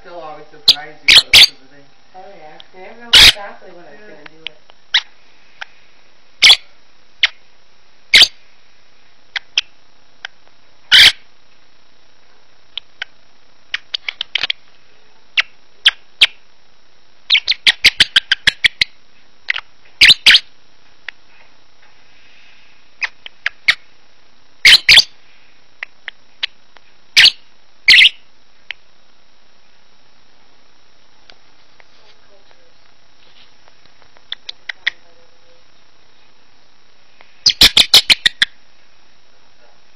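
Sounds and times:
lovebird chirping: 0.0 - 4.3, 4.9 - 5.8, 6.4 - 7.5, 8.1 - 8.4, 10.9 - 11.3, 12.7 - 14.7, 15.3 - 16.4, 17.3 - 20.6, 23.0 - 23.9, 24.6 - 25.2, 27.2 - 28.3, 34.2 - 36.3, 37.3 - 38.6.

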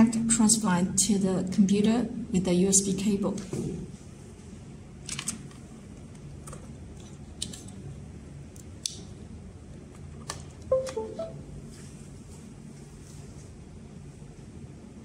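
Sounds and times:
electronic beep tones: 10.7 - 11.4.

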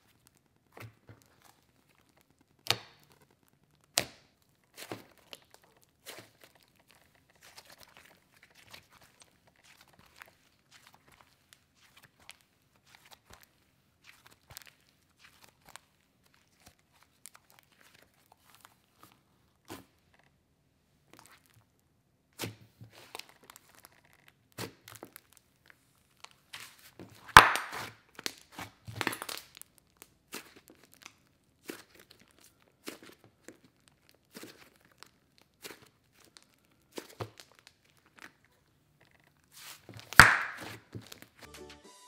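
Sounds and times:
slime sticky pops and clicks: 27.4 - 27.9, 40.1 - 40.8.

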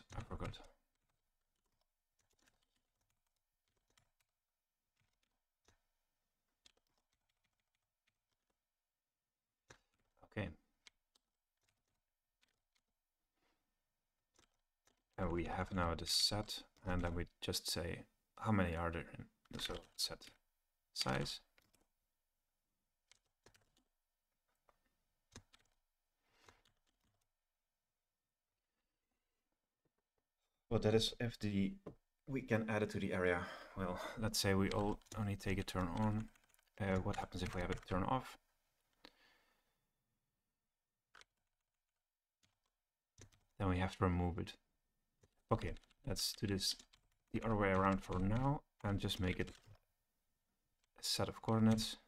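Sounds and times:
computer keyboard clicks: 0.0 - 4.3, 10.8 - 12.9, 23.0 - 23.9, 25.3 - 25.8, 34.0 - 38.2, 41.1 - 41.7, 42.4 - 44.0, 45.2 - 49.8.

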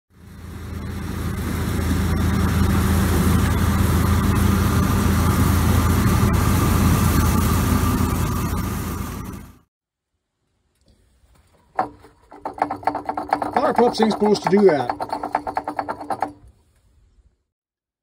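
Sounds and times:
deep engine hum: 0.1 - 9.7
threshing machinery rushing: 0.5 - 9.6.

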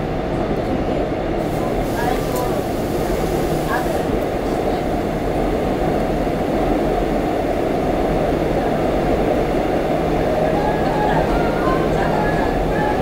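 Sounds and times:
subway train running: 0.0 - 13.0.

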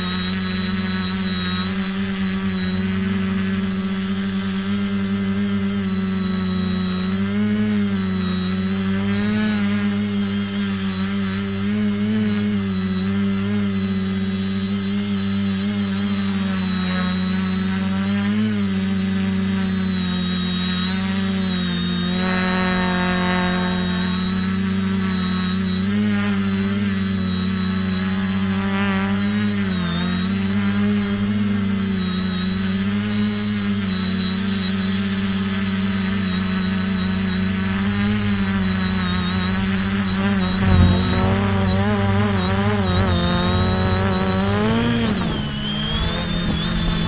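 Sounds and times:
high motor whine: 0.0 - 47.0
quadcopter motors humming: 0.0 - 47.0.

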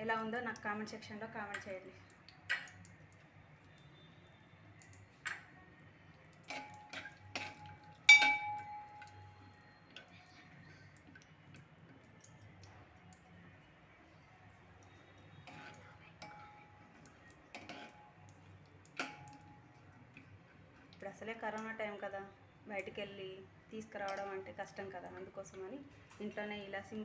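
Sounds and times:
spoon clinking against metal pan: 6.5 - 9.3, 15.4 - 16.8, 19.0 - 19.6, 24.0 - 24.4.

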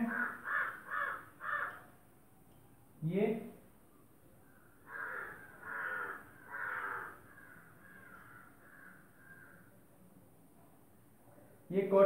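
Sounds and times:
crow cawing: 0.0 - 2.0, 4.4 - 9.9.

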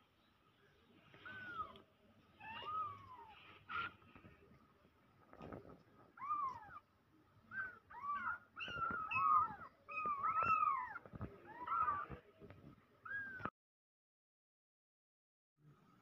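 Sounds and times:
kittens mewing: 1.1 - 4.2, 6.1 - 6.9, 7.5 - 12.3.

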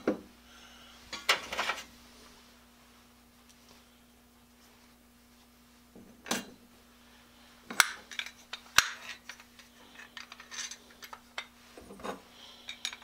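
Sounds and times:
metal parts clinking on workbench: 7.8 - 13.0.

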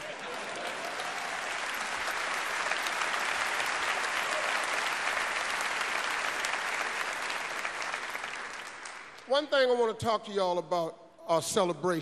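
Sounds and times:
large audience applauding: 0.0 - 9.3.

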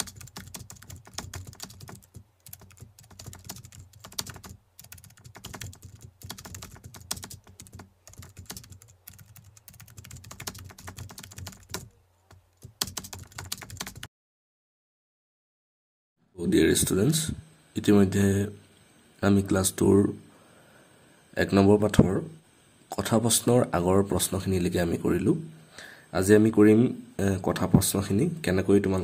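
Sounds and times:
keyboard typing clicks: 0.0 - 14.1.

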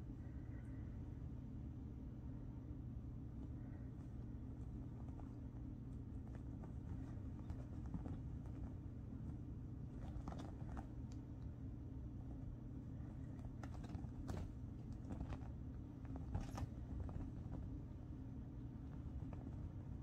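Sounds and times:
steady low hum: 0.0 - 20.0
kitten paws tapping on bedspread: 4.5 - 11.4, 13.1 - 18.1.

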